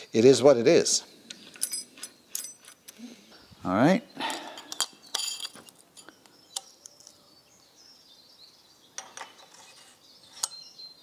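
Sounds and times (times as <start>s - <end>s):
metallic clinks of steel parts: 1.4s - 3.0s, 4.4s - 7.2s.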